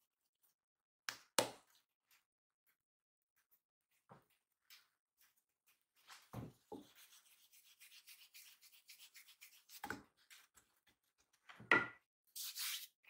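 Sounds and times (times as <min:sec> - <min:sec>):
palms rubbing dough on wood: 0:05.2 - 0:10.1.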